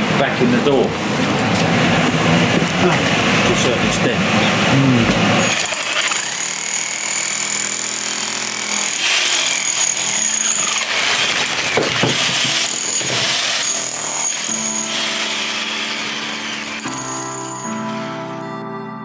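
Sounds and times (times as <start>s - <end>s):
demolition hammer chiselling brick: 5.2s - 17.1s.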